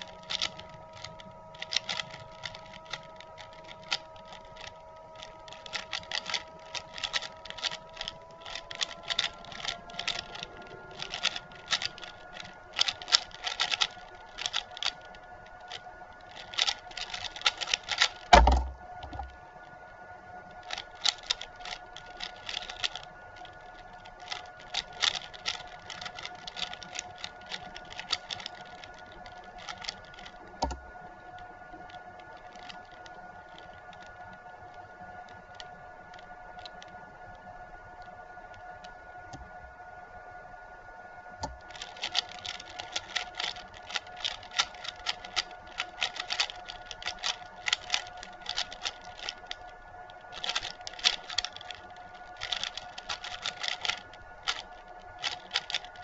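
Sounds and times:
plastic puzzle cube clicking: 0:00.0 - 0:19.4, 0:20.5 - 0:34.2, 0:41.4 - 0:56.0
faint steady hum: 0:00.0 - 0:56.0
heavy thump: 0:18.3 - 0:19.2.

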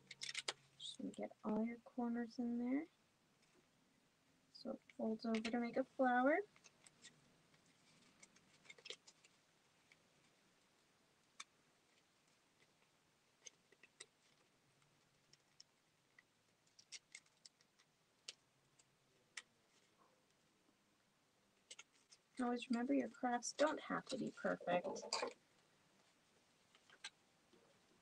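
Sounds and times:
paper clicks and ticks: 0:00.0 - 0:00.6, 0:21.6 - 0:22.8.

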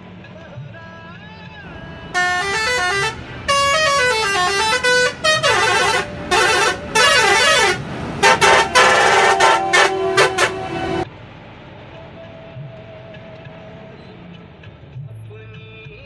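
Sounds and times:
truck rumbling: 0:00.0 - 0:16.0
truck musical horn: 0:01.7 - 0:11.1.

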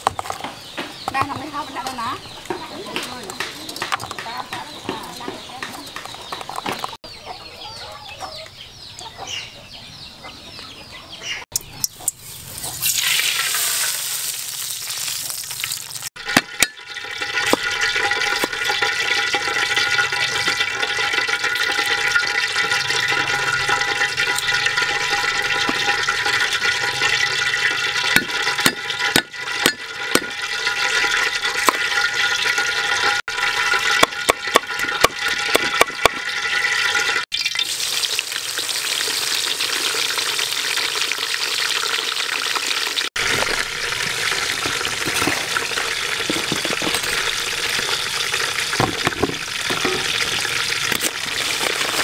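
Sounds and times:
cleaver chopping on wooden board: 0:34.0 - 0:36.2.

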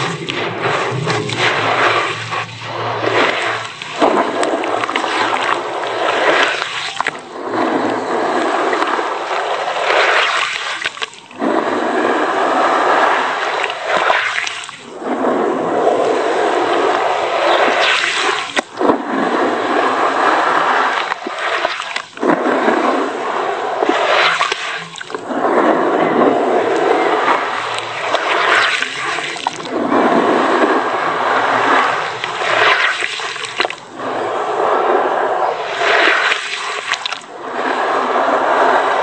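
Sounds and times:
hands sloshing wet cement in water: 0:09.9 - 0:11.4, 0:27.7 - 0:29.8.

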